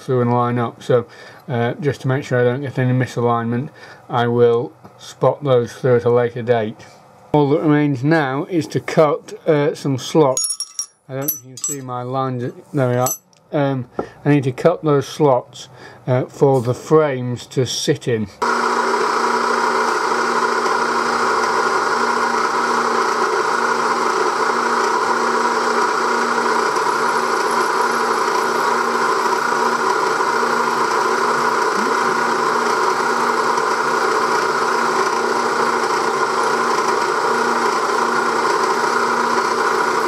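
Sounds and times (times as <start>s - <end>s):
faint constant hum: 0.0s - 18.4s.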